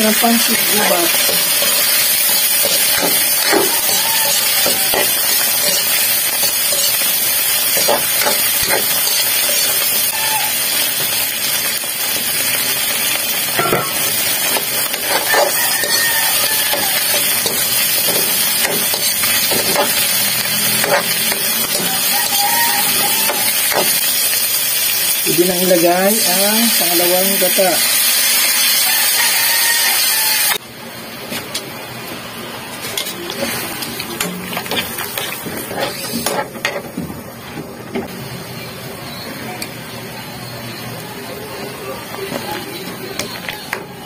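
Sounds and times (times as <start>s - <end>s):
vegetables sizzling in hot oil: 0.0s - 44.0s
metal ladle scraping a wok: 0.4s - 11.6s, 13.6s - 24.3s, 33.0s - 36.9s.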